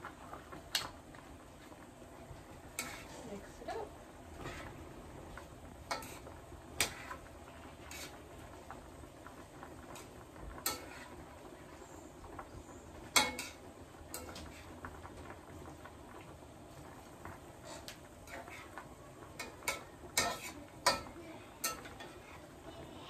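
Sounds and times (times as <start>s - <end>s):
metal spatula scraping a skillet: 2.7s - 3.3s, 4.4s - 4.8s, 5.9s - 8.2s, 10.0s - 11.2s, 13.2s - 14.8s, 17.6s - 18.7s, 19.4s - 22.5s.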